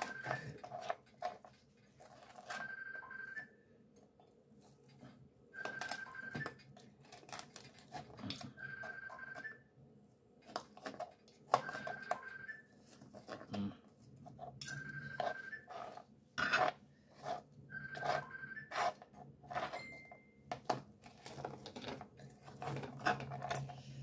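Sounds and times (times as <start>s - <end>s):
electronic beep: 0.0s - 0.6s, 2.6s - 3.6s, 5.6s - 6.6s, 14.6s - 15.7s, 17.7s - 18.7s
knife and fork scraping on board: 14.4s - 20.1s.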